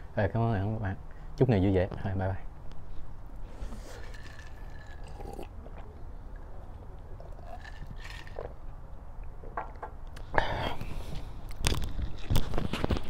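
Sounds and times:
low steady rumble: 0:00.0 - 0:12.6
man chewing and swallowing: 0:03.4 - 0:13.0.

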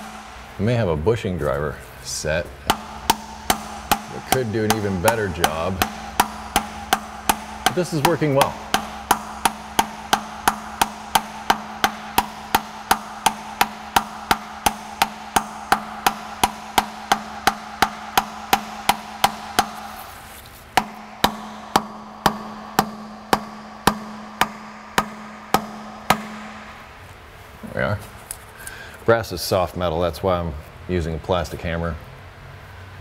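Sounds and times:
plastic hammer tapping on brass: 0:02.7 - 0:26.9.

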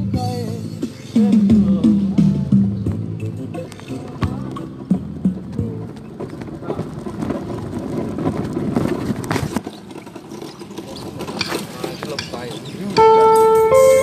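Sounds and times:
indistinct voices: 0:00.0 - 0:07.7
street noise: 0:00.0 - 0:14.0
backing track keyboard chord: 0:13.0 - 0:14.0.

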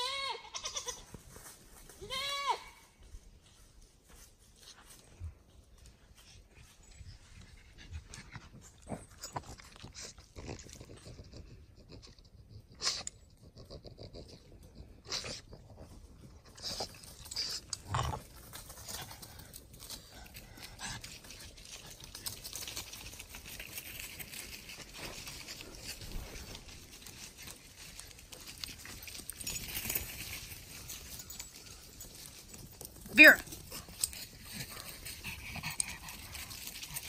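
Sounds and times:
hooves scuffing on dirt: 0:00.7 - 0:08.0
dog panting: 0:06.2 - 0:17.8, 0:33.5 - 0:37.0.

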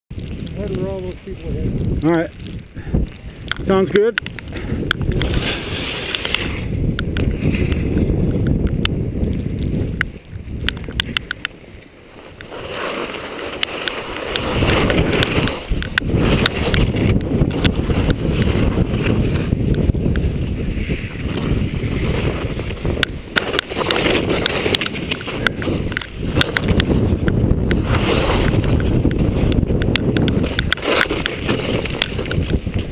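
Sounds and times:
wind rumbling on microphone: 0:00.1 - 0:32.9
skis scraping over snow: 0:00.2 - 0:32.9
sharp clicks: 0:03.4 - 0:05.3, 0:10.0 - 0:12.5.

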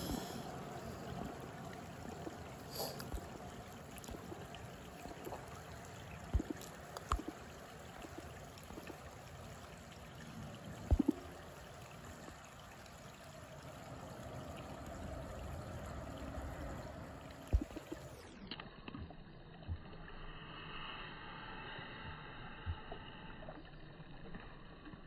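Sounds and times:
river water flowing: 0:00.0 - 0:18.6.

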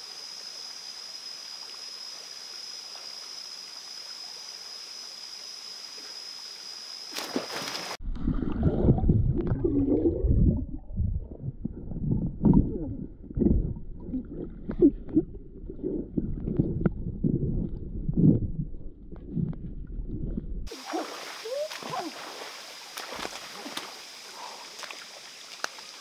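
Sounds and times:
flowing water hiss: 0:00.0 - 0:08.0, 0:20.7 - 0:26.0
insects droning: 0:00.0 - 0:08.0, 0:20.7 - 0:26.0
underwater rumbling and gurgling: 0:08.0 - 0:20.7.

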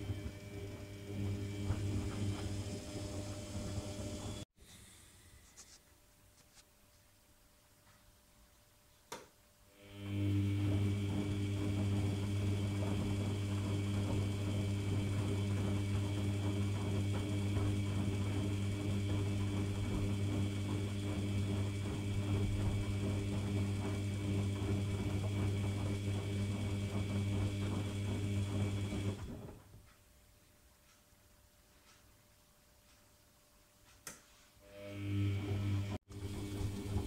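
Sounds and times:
washing machine hum: 0:00.0 - 0:04.5, 0:09.7 - 0:30.0, 0:34.6 - 0:37.0.

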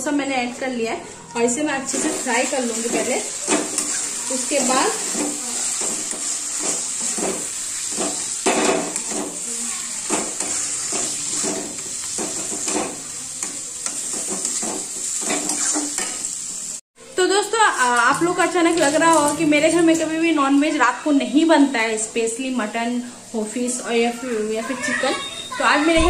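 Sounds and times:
food sizzling in oil: 0:01.3 - 0:26.0
metal spatula scraping pan: 0:01.9 - 0:16.2.

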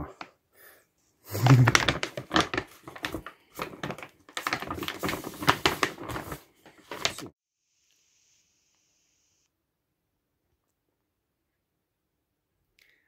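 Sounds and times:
dog food bag crinkling: 0:01.4 - 0:07.3.

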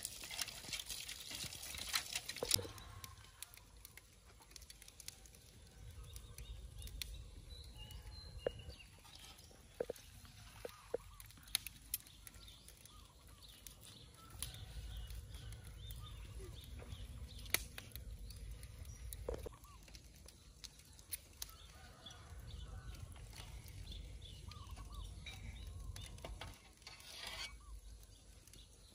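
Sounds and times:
birds chirping: 0:04.6 - 0:26.5.

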